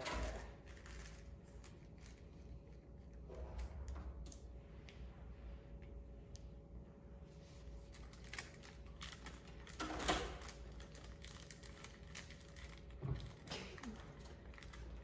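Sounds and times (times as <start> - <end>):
plastic bag crinkling: 0.0 - 2.4, 7.8 - 15.0.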